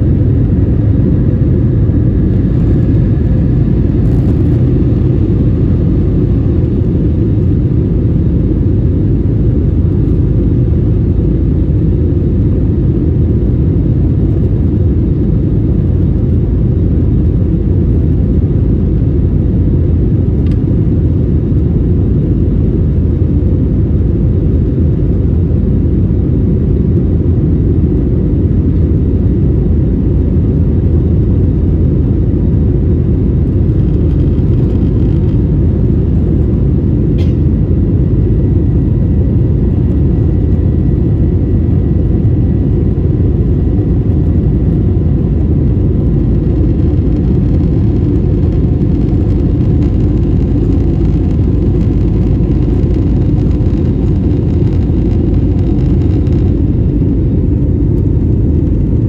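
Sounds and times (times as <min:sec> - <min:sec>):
faint steady whine: 0:00.0 - 0:59.0
jet engine rumble: 0:00.0 - 0:59.0
brief click: 0:37.2 - 0:37.4.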